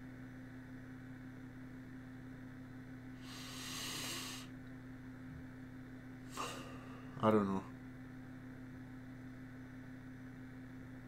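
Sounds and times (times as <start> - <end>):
low electrical hum: 0.0 - 11.0
man blowing breath out: 3.2 - 4.5, 6.3 - 7.2.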